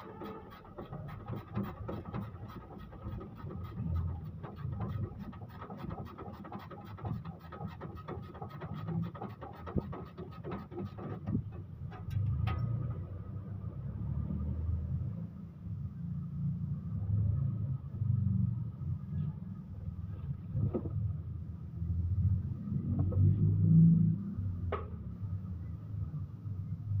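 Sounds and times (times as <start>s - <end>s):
tools clicking on engine parts: 0.0s - 12.8s.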